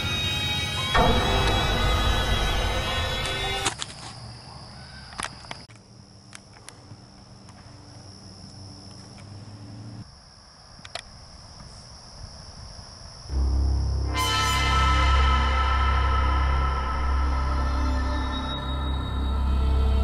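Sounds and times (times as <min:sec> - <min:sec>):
crickets chirping: 0:00.0 - 0:20.0
low hum: 0:00.8 - 0:03.8, 0:13.3 - 0:20.0.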